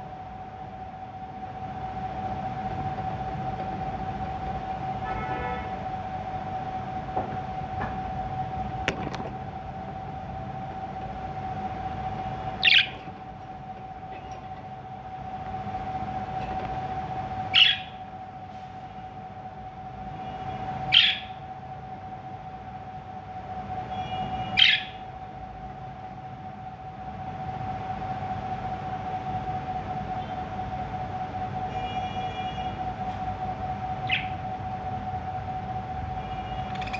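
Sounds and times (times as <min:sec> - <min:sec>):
steady background hum: 0:00.0 - 0:36.9
budgerigar chirps: 0:12.6 - 0:12.9, 0:17.6 - 0:18.0, 0:20.9 - 0:21.3, 0:34.0 - 0:34.4.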